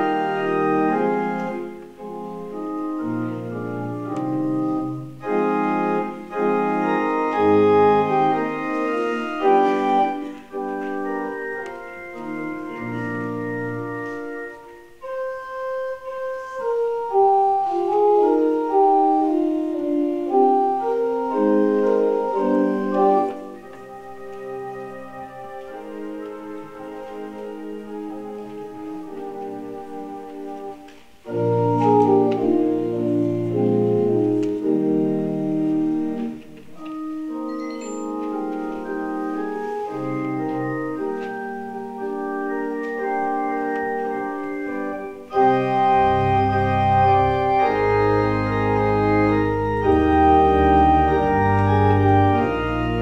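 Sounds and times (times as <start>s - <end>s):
church organ chords: 0.0s - 53.0s.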